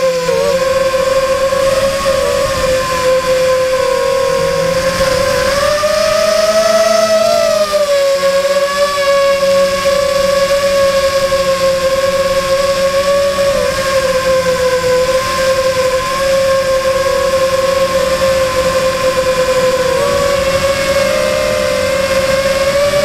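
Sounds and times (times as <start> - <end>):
drone propellers whining: 0.0 - 23.0.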